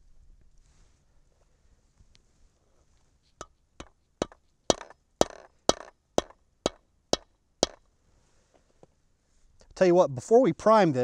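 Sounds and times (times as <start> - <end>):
mallet striking steel die: 3.4 - 7.8.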